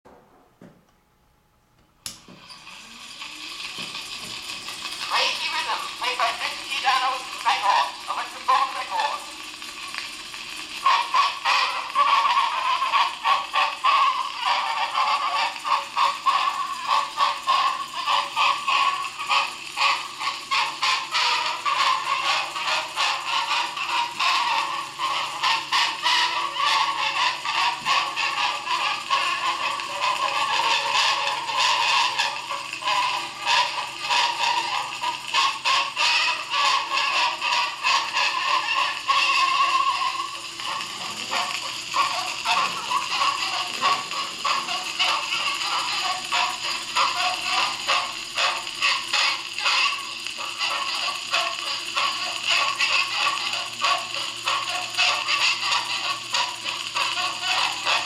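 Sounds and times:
tinny jazz dance-band record: 3.3s - 58.0s.

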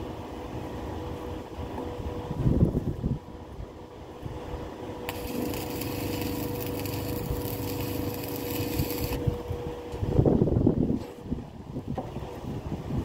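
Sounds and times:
wind rumble on microphone: 1.6s - 13.0s
arc welding crackling hiss: 5.1s - 9.3s.

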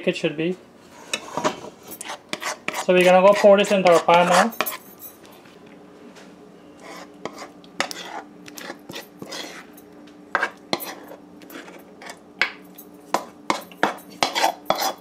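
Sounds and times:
utensil scraping a metal pot: 0.9s - 4.8s, 6.8s - 9.7s, 10.4s - 12.2s, 13.5s - 15.0s.

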